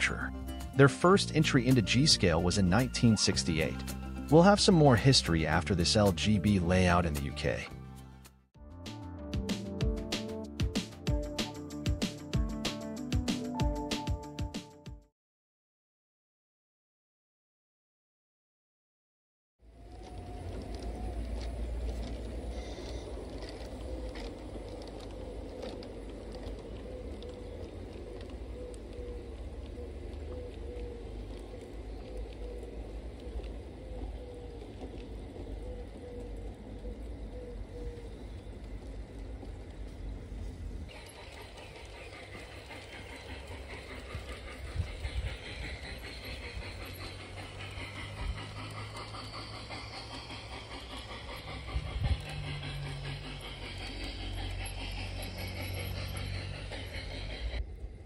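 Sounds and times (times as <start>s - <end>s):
wheels clicking on track: 0.0s - 7.7s, 19.7s - 58.0s
model train motor whine: 19.7s - 38.4s, 40.9s - 57.8s
low steady rumble: 19.8s - 58.0s
hiss: 40.4s - 57.9s.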